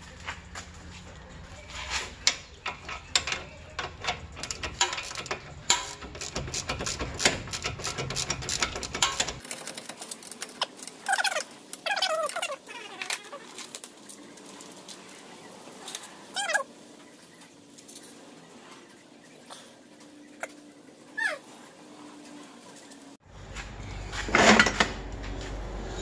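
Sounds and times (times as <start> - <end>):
wavering animal calls: 11.0 - 13.8, 15.8 - 17.2, 19.3 - 22.2.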